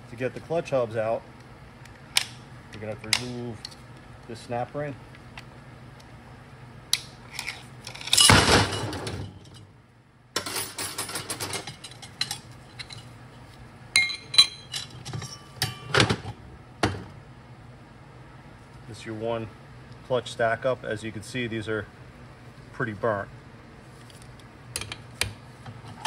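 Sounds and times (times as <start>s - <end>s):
metal parts clinking: 7.3s - 9.6s.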